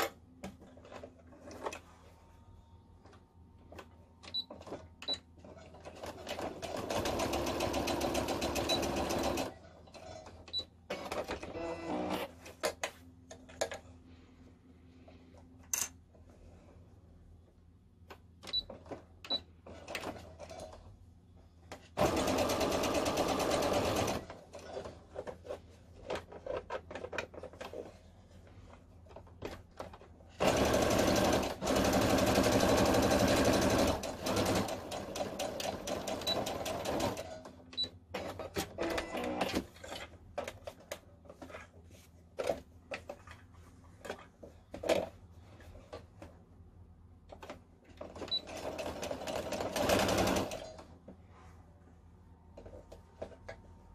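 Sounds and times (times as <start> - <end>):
sewing machine stitching: 5.5 - 12.3, 21.9 - 24.9, 30.3 - 37.5, 48.0 - 50.8.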